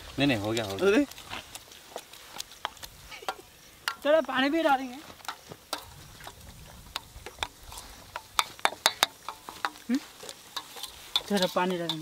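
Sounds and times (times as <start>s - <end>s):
spatula scraping steel bowl: 7.0s - 12.0s.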